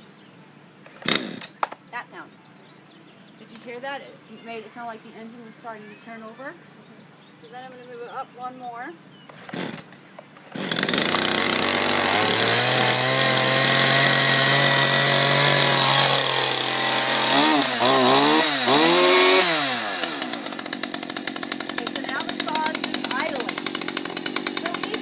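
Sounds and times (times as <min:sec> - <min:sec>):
chainsaw starting and idling: 0:00.9 - 0:01.7, 0:09.3 - 0:25.0.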